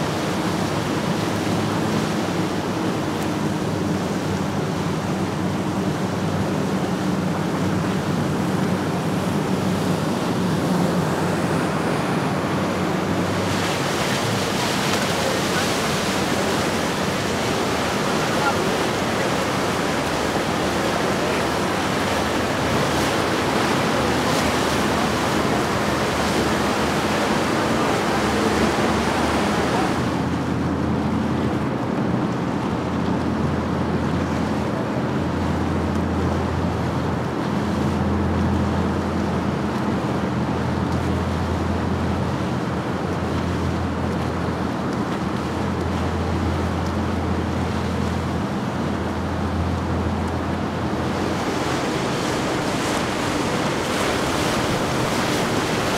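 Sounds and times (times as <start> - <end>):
boat engines motoring past: 0.0 - 55.9
hiss of boat wake: 0.0 - 55.9
rush of water: 0.0 - 55.9
wind on microphone: 41.5 - 55.9.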